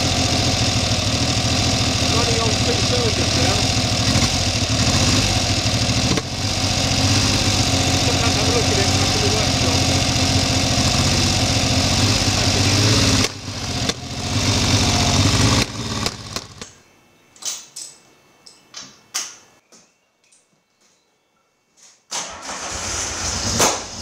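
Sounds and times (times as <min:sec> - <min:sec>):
motorcycle engine idling: 0:00.0 - 0:16.6.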